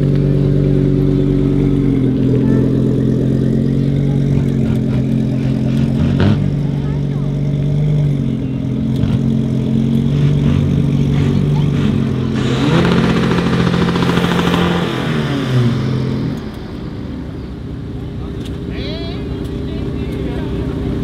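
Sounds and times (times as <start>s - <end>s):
turbocharged car engine running: 0.0s - 21.0s
hissy engine sound rising in pitch: 12.2s - 17.6s.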